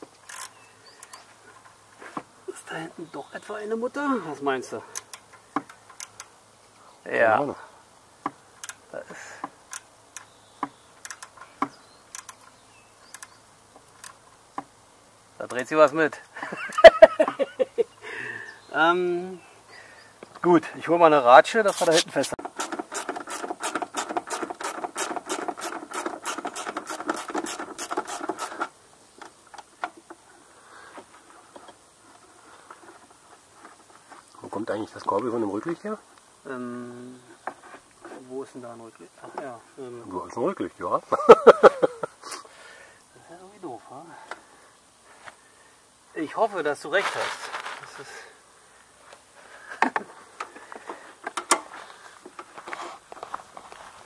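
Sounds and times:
light clicks: 0:12.1 - 0:14.2.

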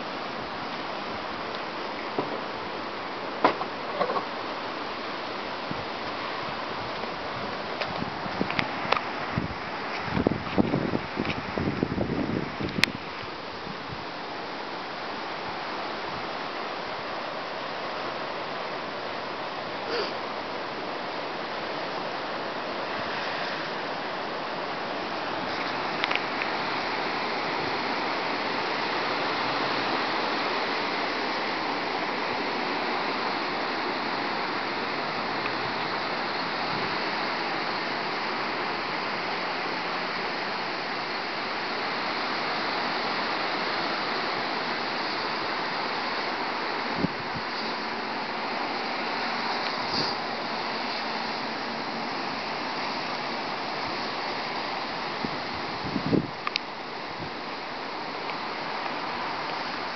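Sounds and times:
strong wind rushing through trees: 0:00.0 - 0:59.9.

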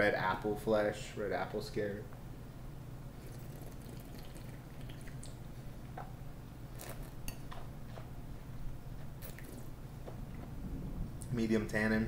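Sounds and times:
steady low hum: 0:00.0 - 0:12.0
wet slurps and lip smacks: 0:09.2 - 0:09.7.

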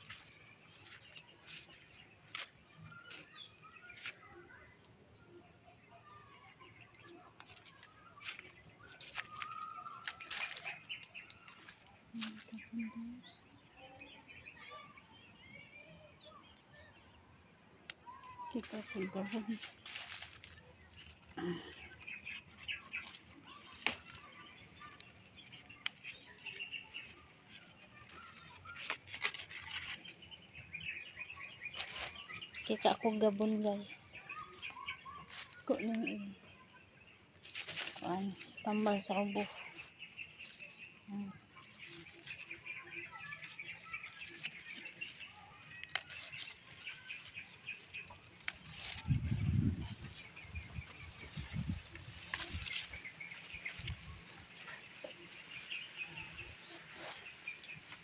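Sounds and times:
footsteps through dry leaves: 0:00.0 - 0:04.2, 0:07.4 - 0:12.6, 0:18.5 - 0:30.6, 0:31.4 - 0:36.3, 0:37.4 - 0:40.8, 0:41.6 - 0:58.0
birds chirping: 0:00.0 - 0:58.0.

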